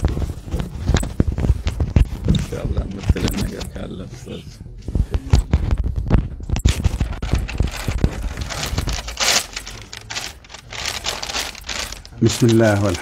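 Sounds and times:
scratchy rubbing on microphone: 0:00.0 - 0:03.7
microphone handling rustling: 0:00.0 - 0:03.8, 0:04.8 - 0:12.2.

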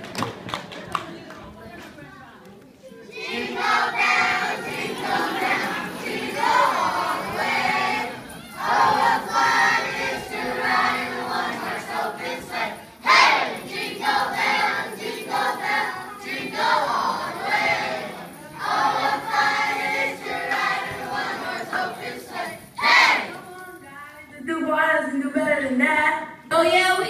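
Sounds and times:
group singing in unison: 0:03.1 - 0:23.5.

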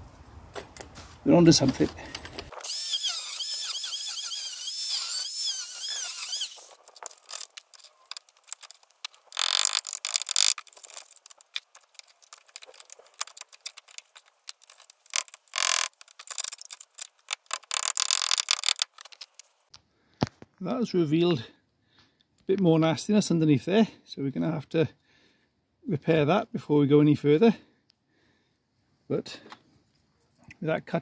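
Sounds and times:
angle grinder cutting metal: 0:02.6 - 0:08.2.

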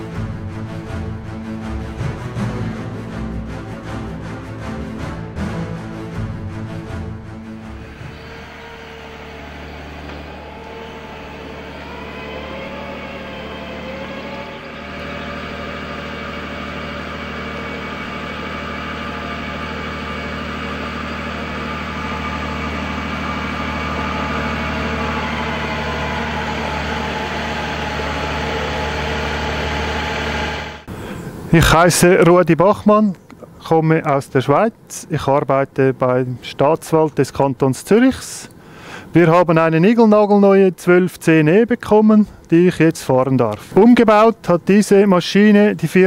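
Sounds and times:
diesel engine running: 0:00.0 - 0:31.8
rising whine: 0:06.5 - 0:31.6.

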